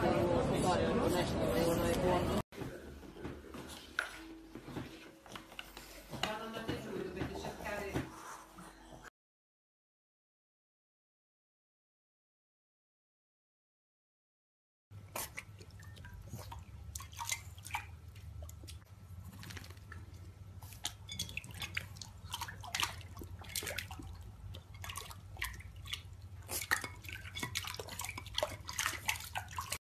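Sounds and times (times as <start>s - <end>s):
puppy lapping and splashing water: 15.0s - 29.8s.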